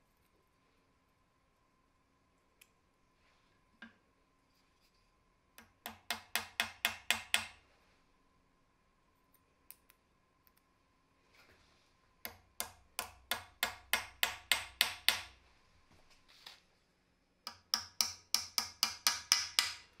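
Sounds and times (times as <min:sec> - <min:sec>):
hammer tapping rivet: 0:05.6 - 0:07.6, 0:12.2 - 0:15.3, 0:17.5 - 0:19.9.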